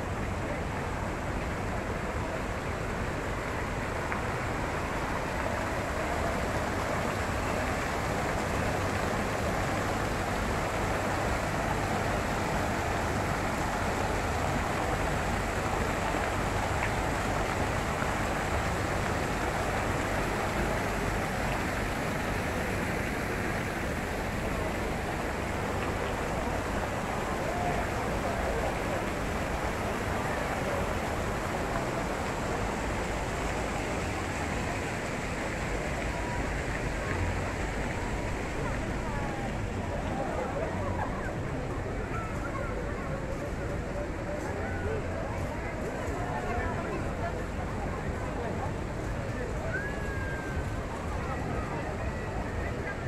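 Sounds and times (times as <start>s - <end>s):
fountain water splashing into pool: 0.0s - 53.0s.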